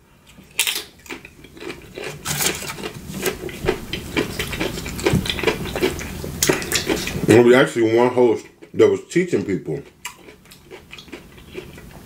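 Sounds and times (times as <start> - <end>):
chewing: 0.3 - 7.3, 8.3 - 12.0
utensil scraping food container: 2.0 - 6.0.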